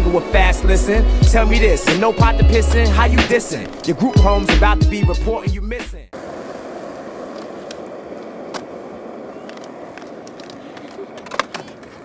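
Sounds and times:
skateboard wheels rolling on asphalt: 0.0s - 5.5s, 6.1s - 12.0s
faint clicks: 9.4s - 12.0s.

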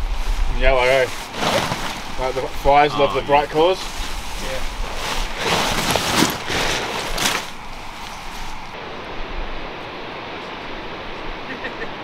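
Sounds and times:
hiss of outdoor air: 0.0s - 5.7s
tent fabric rustling and flapping: 0.1s - 8.8s.

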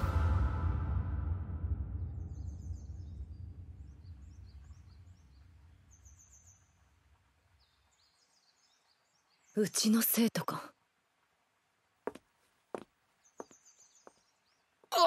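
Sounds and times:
deep low rumble: 0.0s - 5.7s
small birds chirping: 2.2s - 15.0s.

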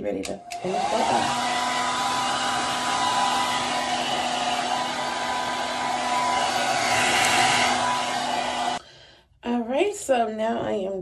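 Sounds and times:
hair dryer running: 0.2s - 8.8s.

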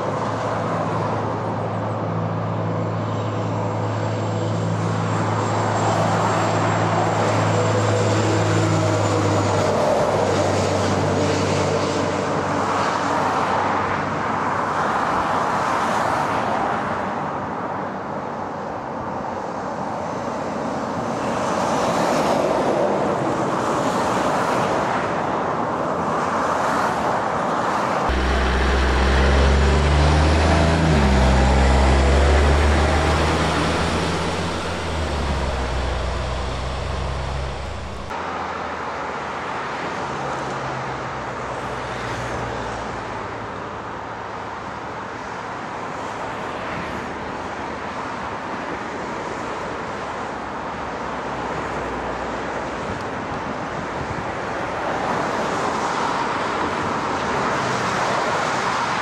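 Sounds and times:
passing traffic: 0.0s - 48.0s
truck diesel engine pulling away: 28.1s - 38.1s.

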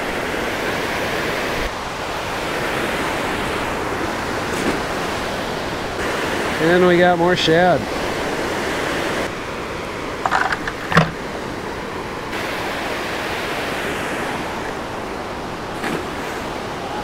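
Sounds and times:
short sharp knocks: 10.3s - 11.2s.

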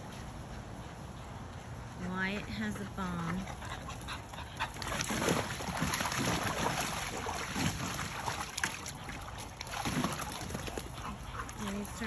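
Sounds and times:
water splashing in a pool: 3.8s - 12.0s.

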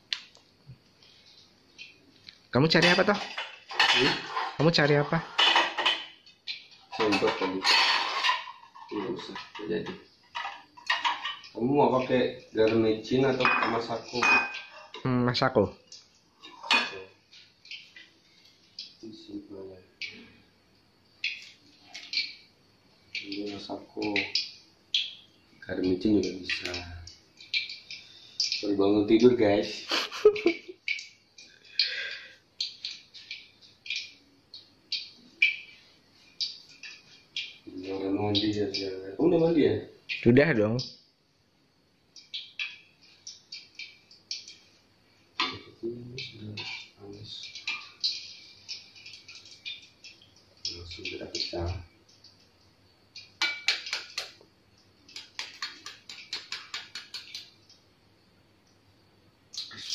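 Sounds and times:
hot oil crackling and spitting: 0.0s - 59.9s
egg cracking against metal spatula: 53.1s - 57.8s.

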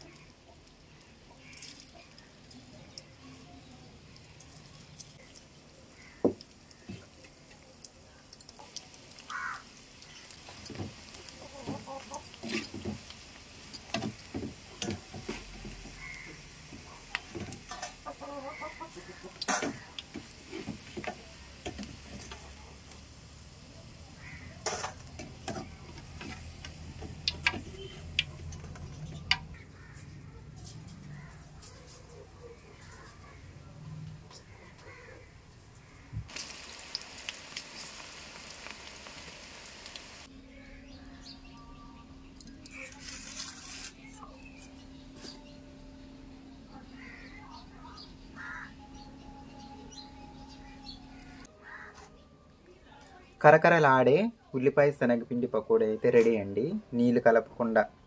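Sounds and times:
oil sizzling with pops: 0.0s - 29.6s, 35.8s - 40.3s.

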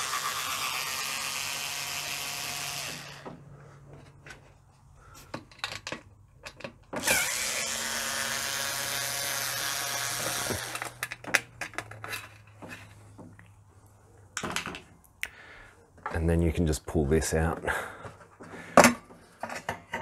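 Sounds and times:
electric screwdriver whining: 0.0s - 3.4s, 7.0s - 11.1s
tool and screws clicking: 5.3s - 12.9s.

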